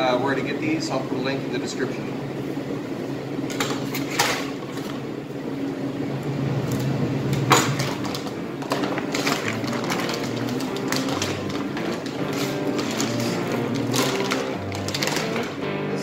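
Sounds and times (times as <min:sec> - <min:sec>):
low machine hum: 0:00.0 - 0:16.0
sharp plastic crackles: 0:07.4 - 0:15.7
plastic wrapping crinkling: 0:07.6 - 0:15.6.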